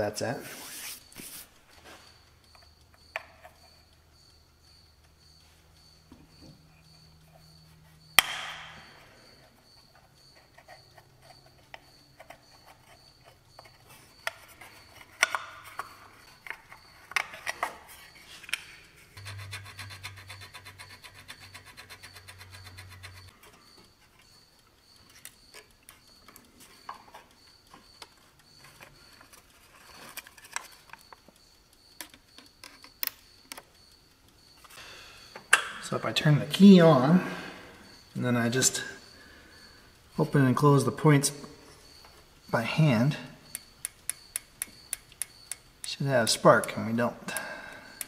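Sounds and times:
low hum: 19.0 - 21.2
hand tools on metal: 19.1 - 24.4, 42.5 - 48.0
rapid even ticks: 19.2 - 36.9, 43.4 - 48.0.

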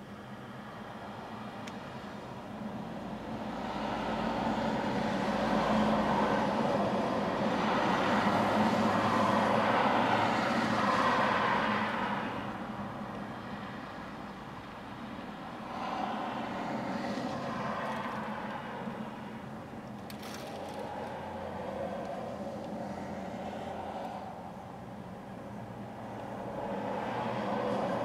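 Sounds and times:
highway traffic passing: 0.0 - 28.0.

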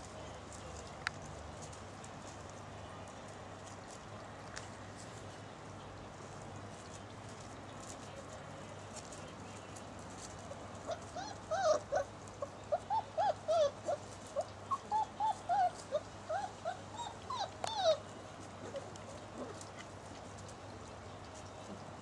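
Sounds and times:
puppy whimpering yips: 10.9 - 12.1, 12.7 - 18.0.

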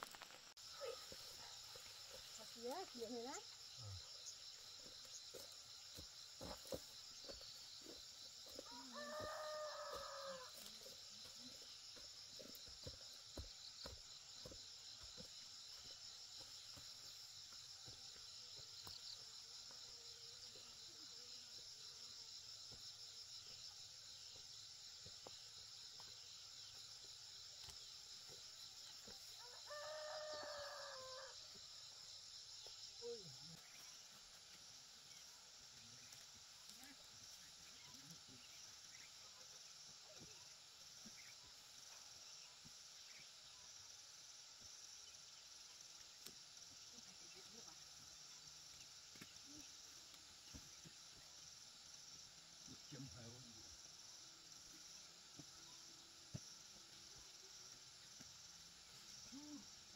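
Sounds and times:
rooster crowing: 8.6 - 10.6, 29.4 - 31.4.

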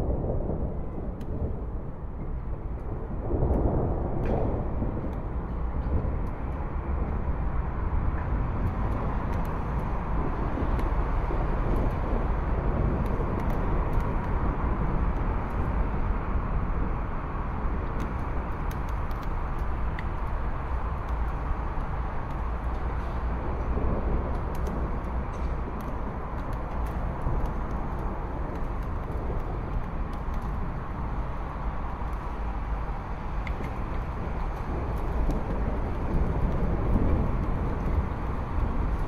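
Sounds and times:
constant hiss of rain: 0.0 - 39.0
low thunder rumble: 0.0 - 39.0.

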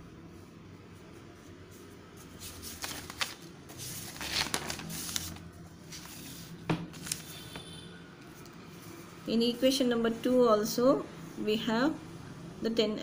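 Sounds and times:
paper rustling and scraping: 1.7 - 7.6.

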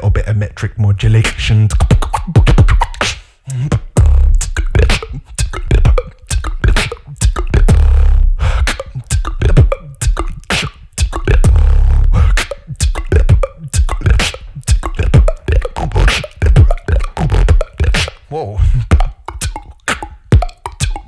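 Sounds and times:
person beatboxing: 0.0 - 21.0.

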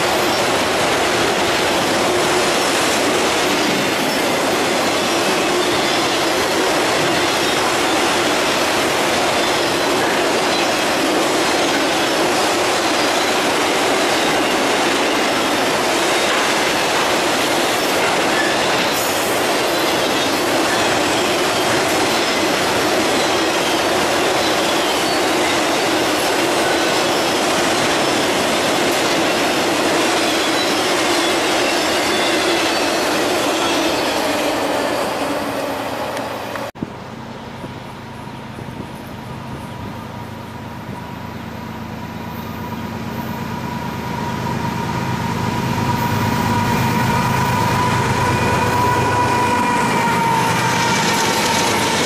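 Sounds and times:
freight train wheels on rails: 0.0 - 52.0.

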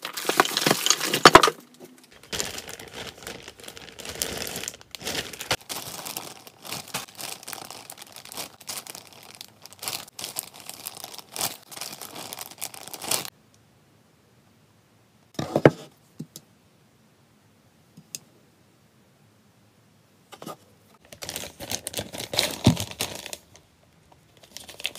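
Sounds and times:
plastic bag crinkling: 0.0 - 13.3, 21.0 - 23.7, 24.3 - 24.9.

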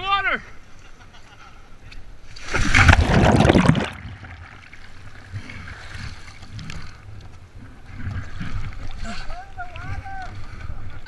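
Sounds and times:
river water splashing: 2.2 - 11.0.

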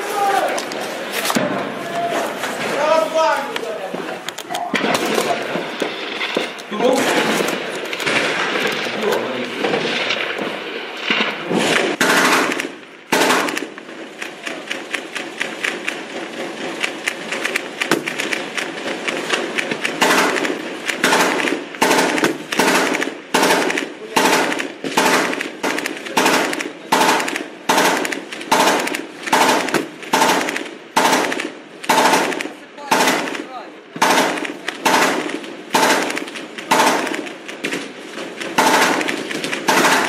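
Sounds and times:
single gunshots echoing: 11.1 - 13.8, 19.9 - 37.8
automatic gunfire: 11.5 - 40.0.

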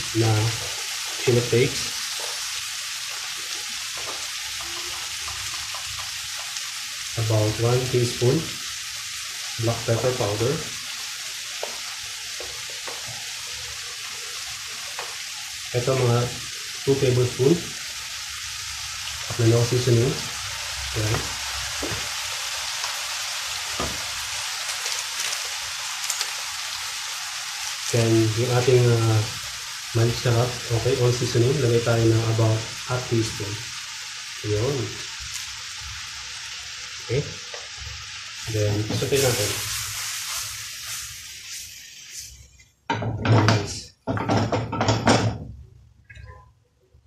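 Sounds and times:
food sizzling in a pan: 0.0 - 45.6
frying pan clattering on stove: 42.9 - 45.6.

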